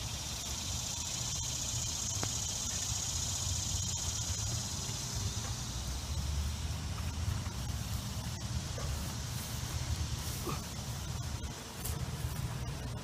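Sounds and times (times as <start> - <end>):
high-pitched insect drone: 0.0 - 10.2.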